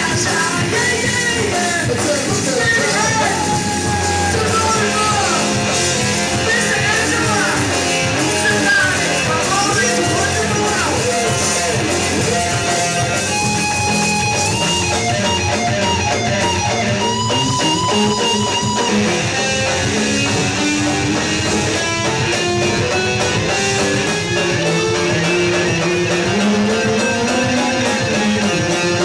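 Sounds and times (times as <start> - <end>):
rock band playing: 0.0 - 29.0
lead guitar repeating note: 3.0 - 29.0.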